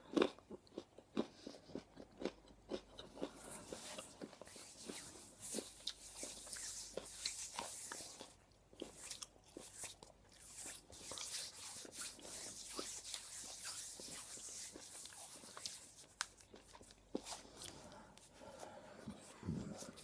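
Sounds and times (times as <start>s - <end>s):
hands rubbing together: 10.5s - 16.4s.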